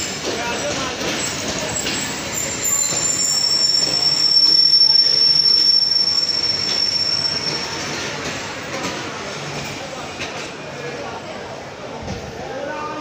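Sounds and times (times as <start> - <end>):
train wheels rumbling: 0.0 - 12.4
high-pitched metallic squeal: 2.4 - 8.1.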